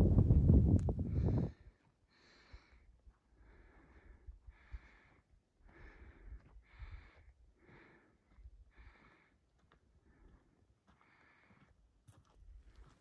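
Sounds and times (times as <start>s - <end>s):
heavy breathing: 1.1s - 9.4s
footsteps on rocky trail: 5.8s - 13.0s.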